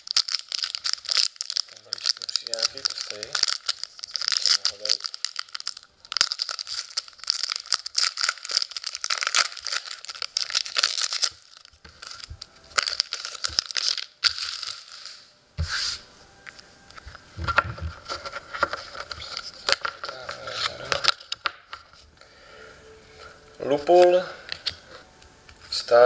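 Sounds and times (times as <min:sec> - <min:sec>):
foil wrapper tearing and crinkling: 0:00.0 - 0:15.3, 0:18.0 - 0:21.6.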